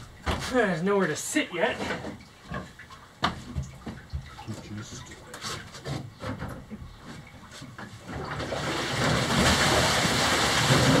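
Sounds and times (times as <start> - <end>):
light knocks and bumps: 0.0 - 8.4
paddle wheel churning water: 7.2 - 11.0.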